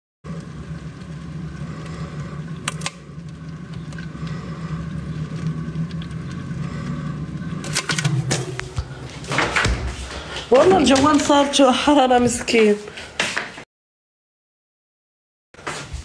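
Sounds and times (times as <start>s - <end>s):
low mechanical hum: 0.3s - 12.6s.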